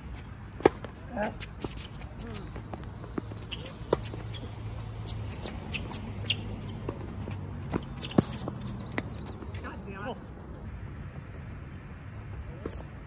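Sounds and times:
shoes scuffing on court: 0.6s - 10.4s.

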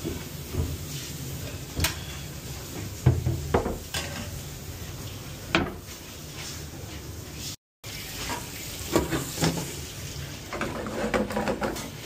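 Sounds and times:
metal pans clanking: 1.4s - 4.4s, 5.5s - 5.9s, 8.2s - 9.8s, 10.5s - 12.0s.

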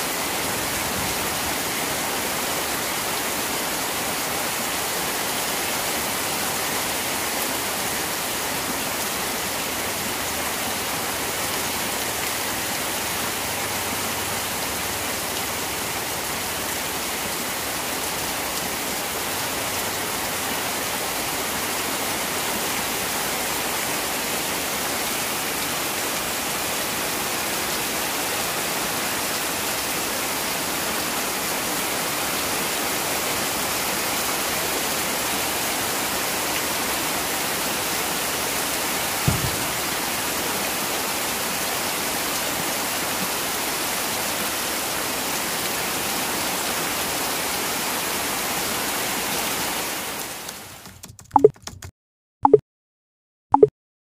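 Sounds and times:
heavy rain on water and concrete: 0.0s - 51.0s
brief low thump: 39.2s - 39.9s.

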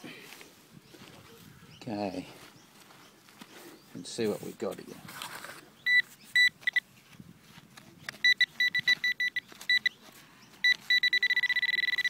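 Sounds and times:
metal detector beeping: 5.8s - 6.8s, 8.2s - 10.0s, 10.6s - 12.0s.

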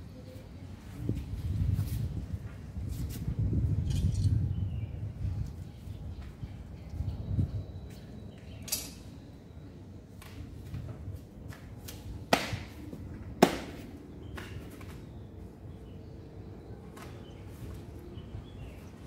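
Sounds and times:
sharp slaps of strikes: 11.9s - 12.8s, 13.4s - 14.6s.

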